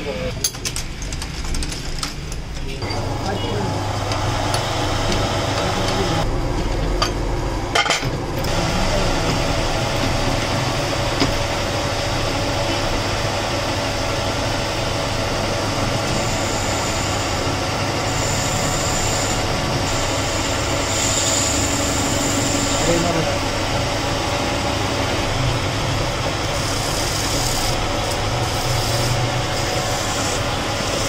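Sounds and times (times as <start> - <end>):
metal lathe cutting steel: 8.5 - 31.0.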